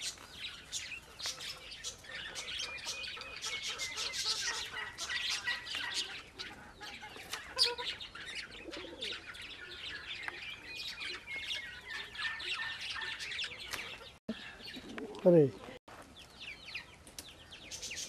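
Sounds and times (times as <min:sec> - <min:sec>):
small birds chirping: 0:00.0 - 0:18.0
pigeon cooing: 0:01.2 - 0:15.2.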